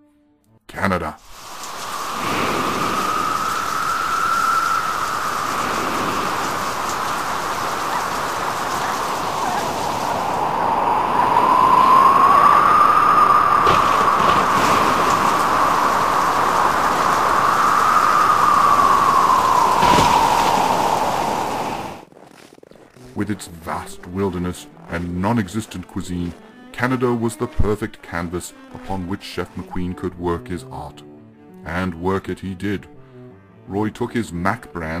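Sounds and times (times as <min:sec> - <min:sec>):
rush of rain and spray: 0:01.2 - 0:22.1
howling wind: 0:01.2 - 0:22.2
sudden crash: 0:19.3 - 0:22.0.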